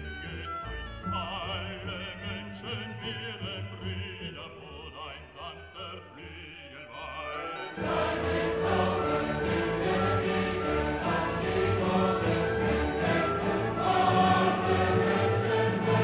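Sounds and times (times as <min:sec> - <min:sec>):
operatic voice singing: 0:00.0 - 0:16.0
orchestral accompaniment: 0:07.1 - 0:16.0.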